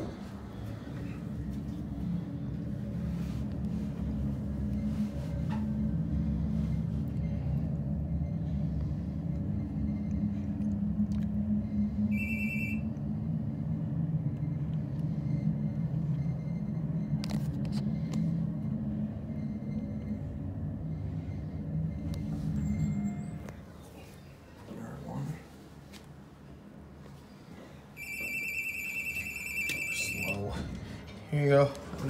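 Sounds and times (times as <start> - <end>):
elevator low hum: 0.0 - 32.0
short electronic beep: 12.1 - 12.9.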